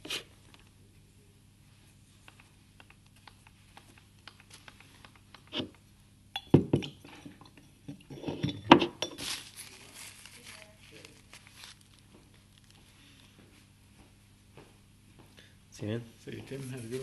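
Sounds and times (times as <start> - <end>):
handling knocks and clatter: 6.4 - 10.4.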